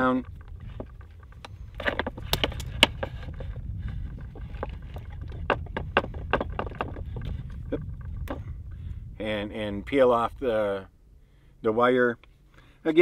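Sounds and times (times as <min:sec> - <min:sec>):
steady low rumble: 0:00.0 - 0:12.9.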